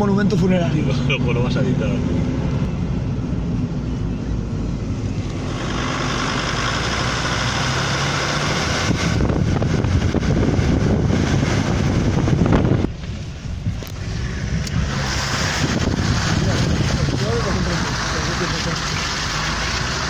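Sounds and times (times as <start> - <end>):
vehicle engine and tyre noise: 0.0 - 20.0
wind rushing over microphone: 8.4 - 17.7.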